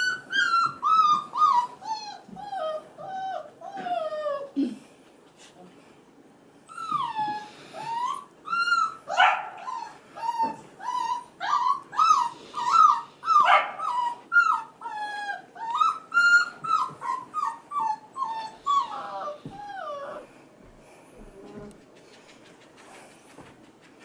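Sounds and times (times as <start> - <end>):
puppies whining: 0.0 - 4.6, 6.6 - 20.6.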